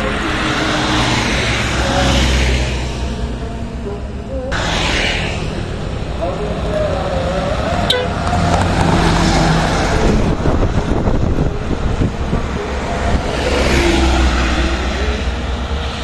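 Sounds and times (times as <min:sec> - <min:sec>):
truck passing close: 0:00.0 - 0:16.0.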